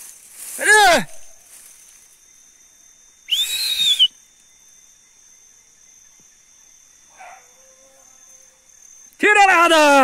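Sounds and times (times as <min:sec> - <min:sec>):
insect trill: 0:00.0 - 0:10.0
loud human whistle: 0:03.3 - 0:04.2.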